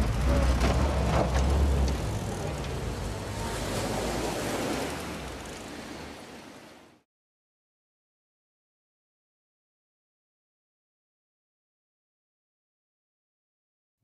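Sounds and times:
jeep engine pulling away: 0.0s - 4.2s
sea waves washing: 0.0s - 7.0s.

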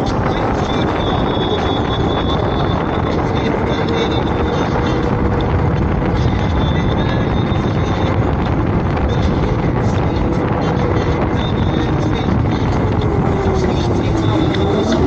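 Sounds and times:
thin high whine: 0.0s - 15.0s
vehicle road noise: 0.0s - 15.0s
wind rushing over microphone: 0.0s - 15.0s.

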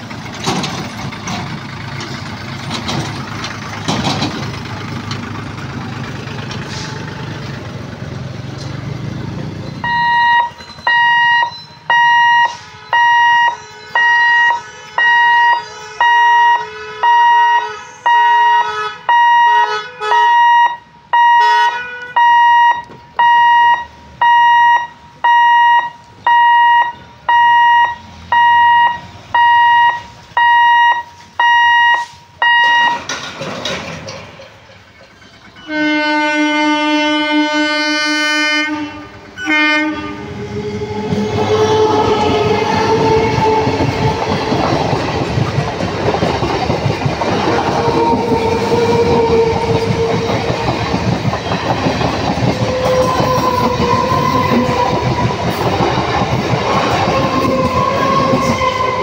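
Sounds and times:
road vehicle engines rumbling: 0.0s - 59.0s
level crossing alarm beeping: 9.7s - 33.2s.

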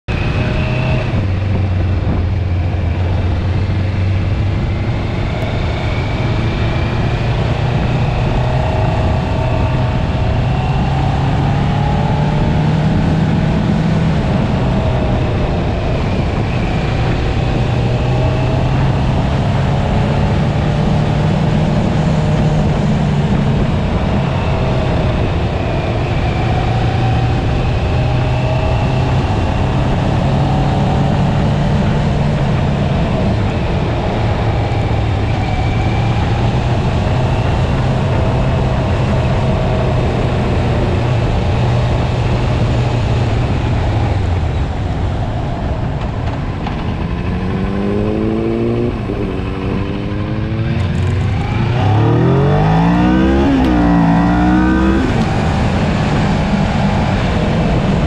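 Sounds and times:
heavy wind noise: 0.0s - 58.0s
motorcycle engine running: 27.4s - 58.0s.

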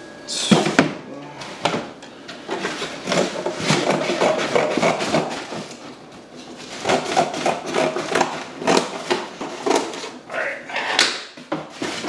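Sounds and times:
cardboard crackling and scraping: 11.7s - 12.0s.

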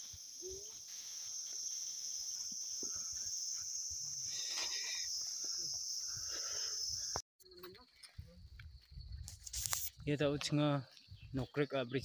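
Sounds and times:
insects droning chorus: 0.0s - 8.0s.

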